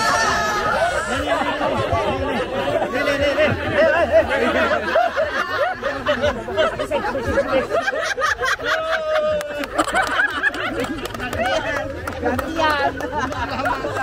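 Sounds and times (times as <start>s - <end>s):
long drawn-out shout: 0.0s - 3.2s, 8.6s - 9.8s
group of people laughing: 0.0s - 14.0s.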